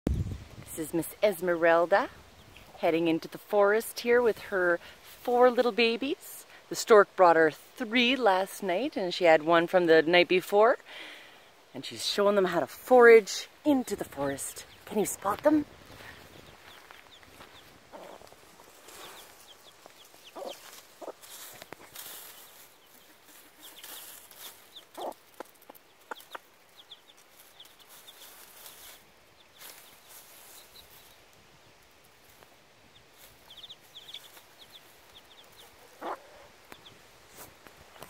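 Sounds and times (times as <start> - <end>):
rustling of dry leaves: 12.0 - 38.0
chicks peeping: 13.8 - 31.3, 32.2 - 38.0
hen clucking softly: 20.2 - 21.2, 24.9 - 26.9, 33.5 - 36.9.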